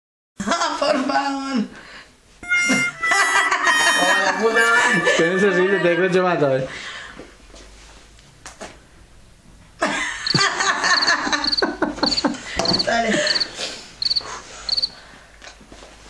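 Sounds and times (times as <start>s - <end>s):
women laughing: 2.8s - 5.6s, 9.8s - 13.5s
cricket chirping: 10.2s - 15.0s.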